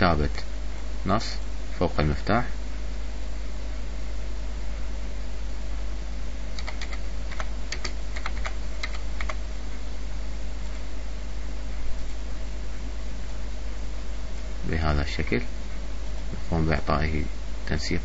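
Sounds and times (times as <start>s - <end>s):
steady background hiss: 0.0s - 18.0s
typing on computer keyboard: 6.6s - 9.4s.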